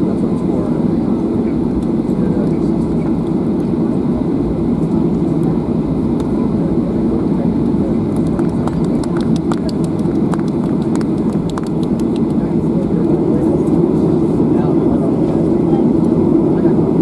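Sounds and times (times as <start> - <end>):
jet engine low rumble: 0.0 - 17.0.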